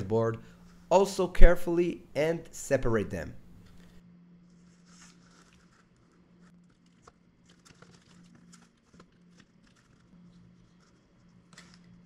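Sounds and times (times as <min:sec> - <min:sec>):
steady low hum: 0:00.0 - 0:07.5.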